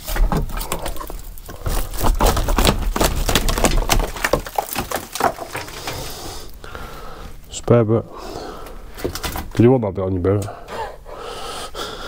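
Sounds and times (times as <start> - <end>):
rotten wood cracking and crunching: 0.0 - 6.8.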